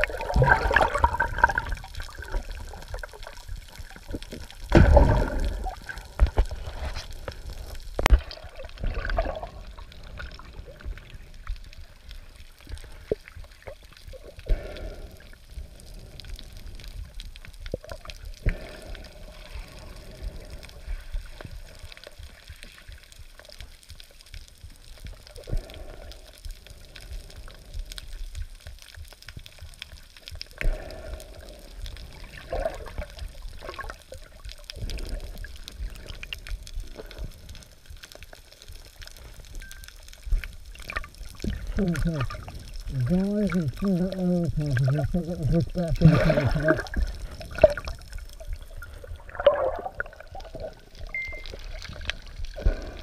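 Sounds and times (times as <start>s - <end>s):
water splashing at surface: 0.0s - 10.2s, 40.8s - 53.0s
bubbling gurgles: 0.0s - 17.0s, 30.0s - 37.5s, 40.6s - 53.0s
muffled underwater rumble: 0.0s - 53.0s.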